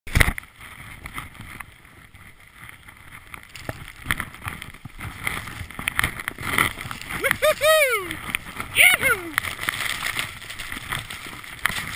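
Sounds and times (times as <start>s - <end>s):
skis hissing through snow: 3.0s - 11.9s.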